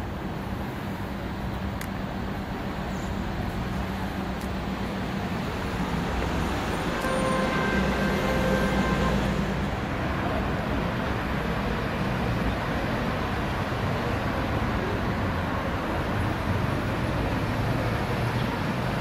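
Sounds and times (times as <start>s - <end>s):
city street traffic: 0.0s - 19.0s.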